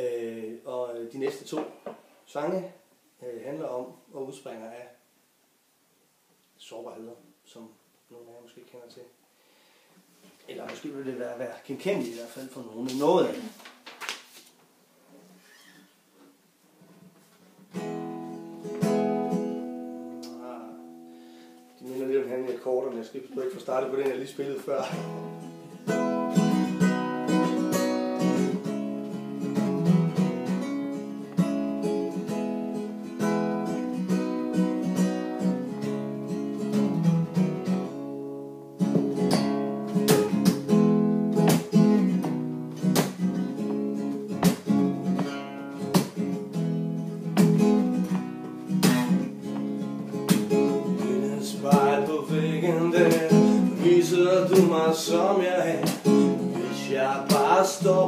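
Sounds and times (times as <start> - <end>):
acoustic guitar strumming chords: 17.6 - 22.6, 24.6 - 58.0.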